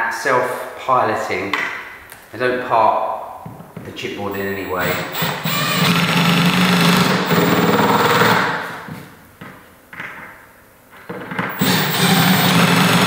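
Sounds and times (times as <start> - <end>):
cordless drill driving screws: 4.3 - 8.6, 11.5 - 13.0.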